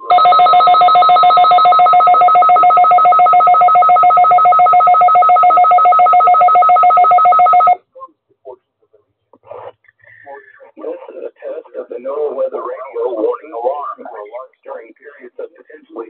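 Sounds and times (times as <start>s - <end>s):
alert radio two-tone beeping: 0.0s - 7.8s.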